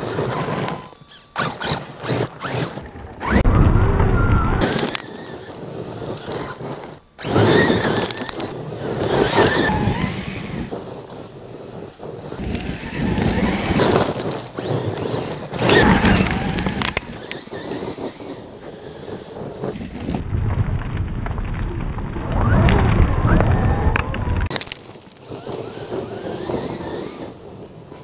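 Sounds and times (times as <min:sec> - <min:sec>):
gravel crunching under tyres: 0:00.0 - 0:03.4, 0:04.6 - 0:28.0
electric motor whining: 0:00.0 - 0:03.5, 0:04.6 - 0:19.8, 0:24.6 - 0:28.0.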